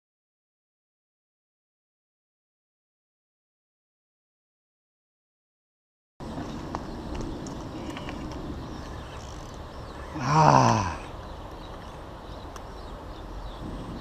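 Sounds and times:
outdoor background hiss: 0:06.2 - 0:14.0
man groaning exhale: 0:10.1 - 0:11.1.

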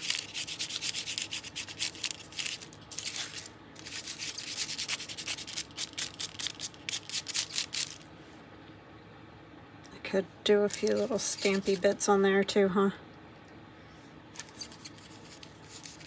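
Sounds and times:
hand rubbing over paper: 0:10.7 - 0:12.0.

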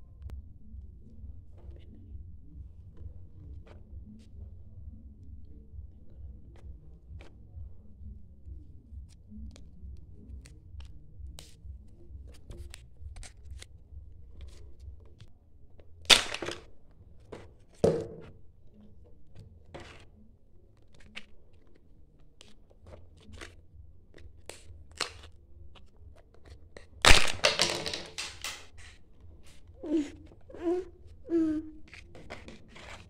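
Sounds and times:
plastic egg clicks and crinkles: 0:14.3 - 0:17.9, 0:20.7 - 0:29.8
sharp plastic cracks: 0:16.0 - 0:17.9, 0:24.4 - 0:29.0.

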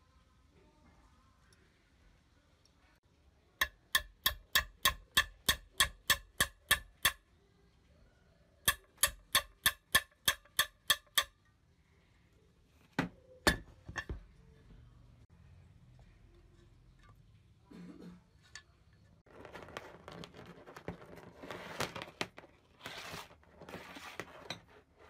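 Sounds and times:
hammer tapping a small pin: 0:03.6 - 0:07.2, 0:08.7 - 0:11.4.

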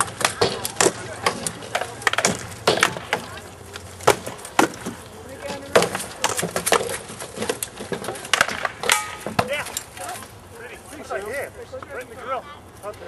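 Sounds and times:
wooden swords striking shields: 0:00.0 - 0:10.3.

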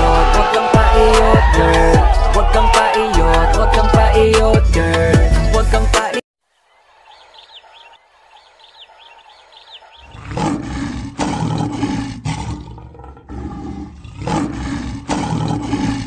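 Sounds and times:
birds chirping faintly: 0:06.4 - 0:10.5
lion roaring and growling: 0:09.9 - 0:16.0.

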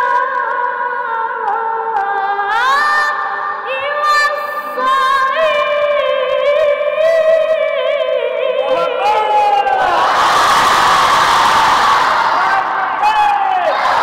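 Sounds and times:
boy reciting melodically: 0:00.0 - 0:09.8.

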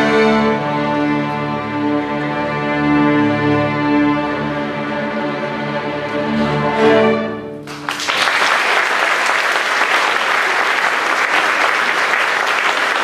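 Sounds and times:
audience applause: 0:07.6 - 0:13.0.

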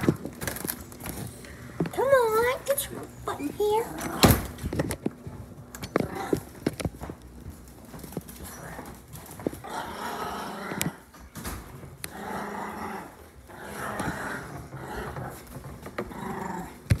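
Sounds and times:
dog growling: 0:05.9 - 0:06.5, 0:08.4 - 0:11.1, 0:12.0 - 0:17.0.

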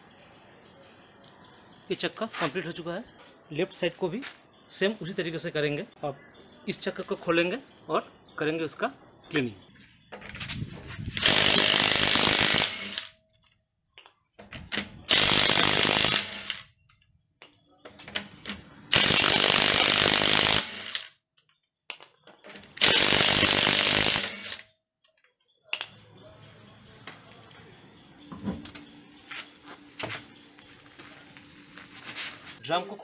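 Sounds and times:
impact wrench hammering: 0:11.2 - 0:13.1, 0:15.1 - 0:16.6, 0:18.9 - 0:21.1, 0:21.9 - 0:24.6.

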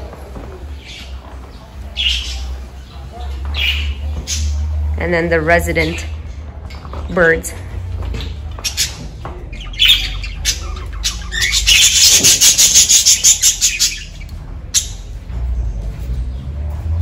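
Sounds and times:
budgerigars chirping and squawking: 0:00.7 - 0:04.9, 0:05.5 - 0:07.0, 0:08.1 - 0:15.2.

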